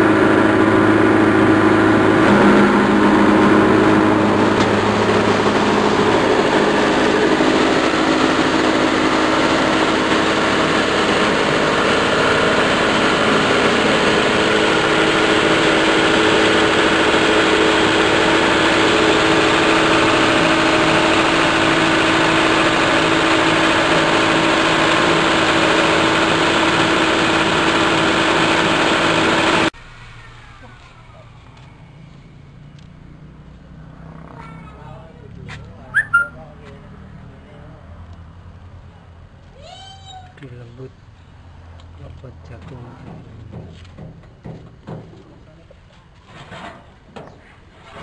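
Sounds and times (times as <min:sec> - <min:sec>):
grinder machine running: 0:00.0 - 0:29.7.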